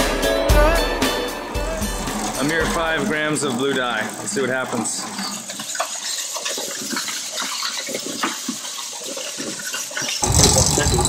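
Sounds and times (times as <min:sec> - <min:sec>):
music with drums: 0:00.0 - 0:03.0
wet concrete sloshing in bucket: 0:01.8 - 0:11.0.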